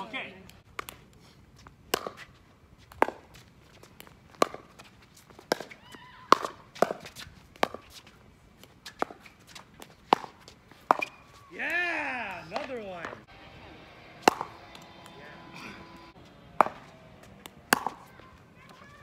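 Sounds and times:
ball bouncing: 0:01.9 - 0:02.2, 0:04.0 - 0:07.9, 0:09.8 - 0:11.2, 0:12.4 - 0:13.3, 0:14.1 - 0:15.2, 0:15.9 - 0:19.0
paddles striking plastic ball: 0:16.5 - 0:18.2.

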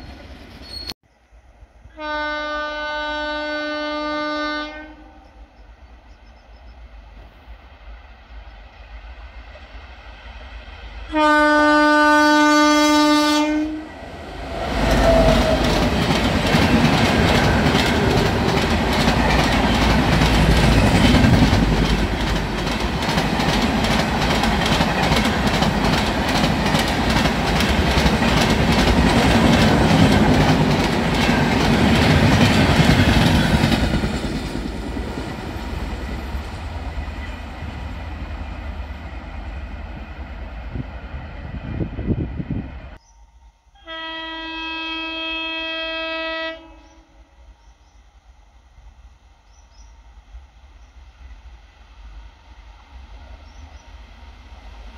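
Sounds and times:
locomotive horn blast: 0:01.9 - 0:05.3, 0:11.1 - 0:14.0, 0:43.8 - 0:47.2
train wheels clattering: 0:14.8 - 0:38.6.

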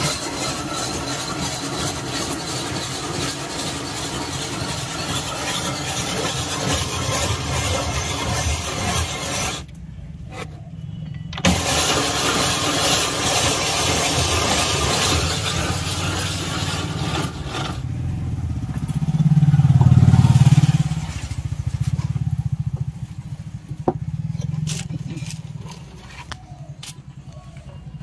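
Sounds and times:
ice shaving scrape: 0:00.0 - 0:09.7, 0:11.4 - 0:17.9, 0:24.4 - 0:26.4
low pulsing engine: 0:14.3 - 0:28.0.

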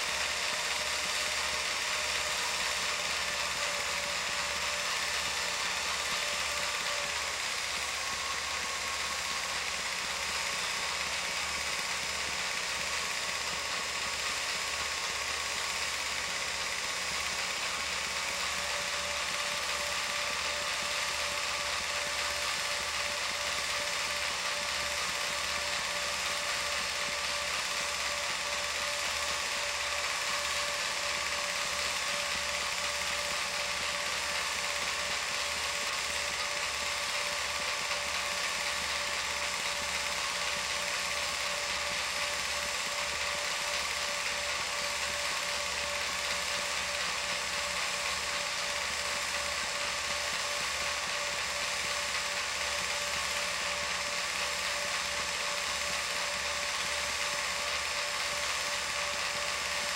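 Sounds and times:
film projector whirring: 0:00.0 - 0:59.9.

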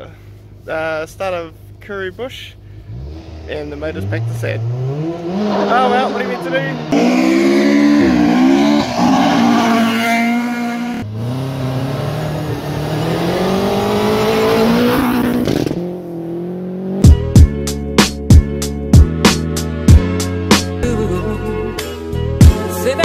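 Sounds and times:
rally car engines revving: 0:02.7 - 0:17.2
beat-driven music: 0:17.0 - 0:23.0.

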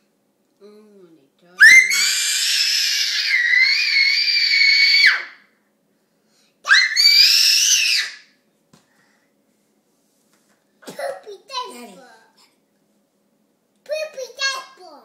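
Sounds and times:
toddler squealing: 0:01.6 - 0:05.3.

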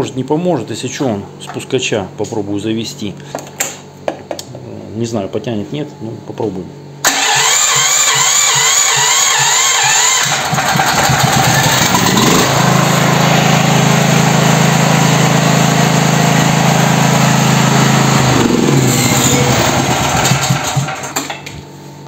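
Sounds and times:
electric starter cranking: 0:07.0 - 0:21.4
generator engine running: 0:07.0 - 0:21.4.

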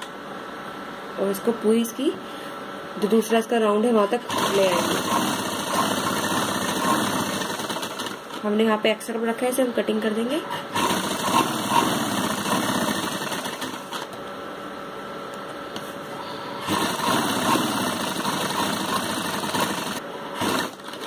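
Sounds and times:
sewing machine stitching: 0:04.3 - 0:08.4, 0:10.5 - 0:14.1, 0:16.6 - 0:21.0.

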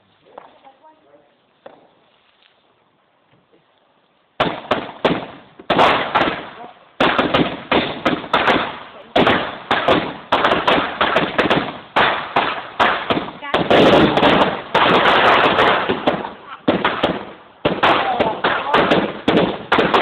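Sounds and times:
firework cake bangs: 0:04.4 - 0:20.0.

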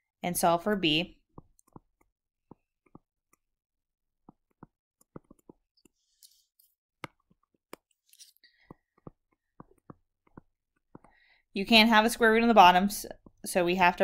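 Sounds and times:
stylus tapping on touchscreen: 0:01.4 - 0:03.4, 0:04.3 - 0:06.0, 0:08.6 - 0:11.2
soft breaths: 0:11.0 - 0:11.5.

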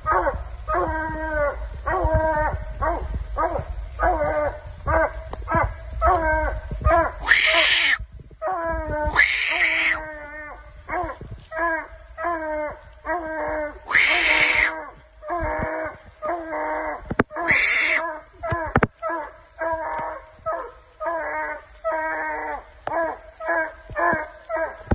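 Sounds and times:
harsh high yelps: 0:07.0 - 0:08.0, 0:09.0 - 0:10.0, 0:13.8 - 0:14.8, 0:17.3 - 0:18.8
puppies barking: 0:07.1 - 0:08.0.

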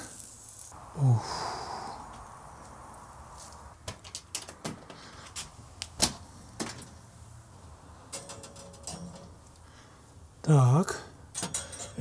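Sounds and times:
metal clicks and clinks: 0:08.1 - 0:09.4, 0:11.3 - 0:12.0.

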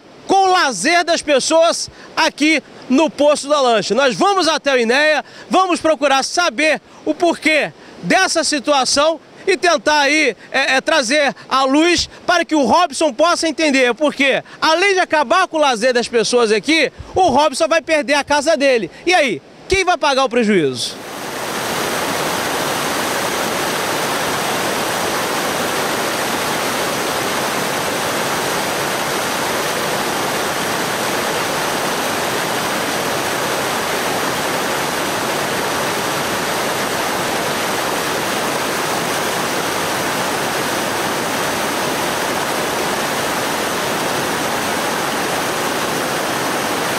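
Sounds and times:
river water rushing over rocks: 0:00.0 - 0:20.1, 0:20.9 - 0:46.9.

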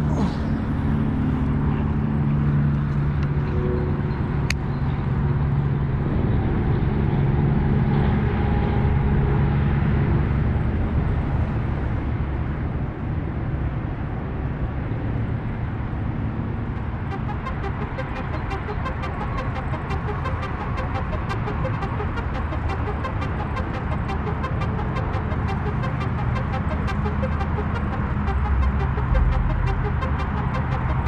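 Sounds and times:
low outdoor rumble: 0:16.2 - 0:31.0
low hum: 0:16.7 - 0:31.0.

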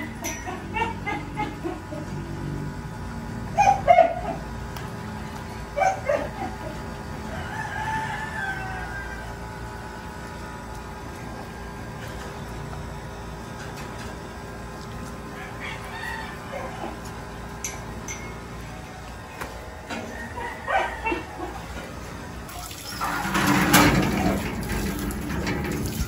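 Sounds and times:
rooster crowing: 0:07.0 - 0:09.9, 0:15.3 - 0:17.1, 0:19.8 - 0:21.9.

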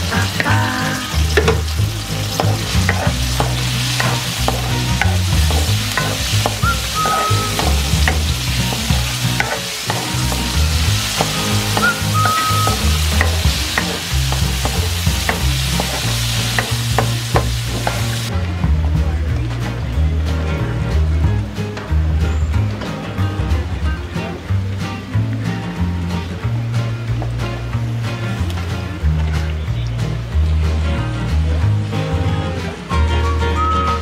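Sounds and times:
food sizzling in hot oil: 0:00.0 - 0:18.3
wooden spatula scraping wok: 0:00.0 - 0:18.3.

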